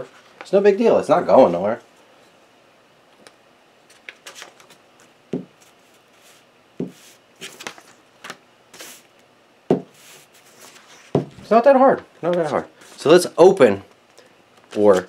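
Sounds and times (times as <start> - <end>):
paper rustling and crinkling: 3.9 - 6.4, 7.0 - 9.0, 10.0 - 11.5, 14.7 - 15.0
dull thumps on a table: 5.3 - 5.5, 9.7 - 9.9, 11.1 - 11.4.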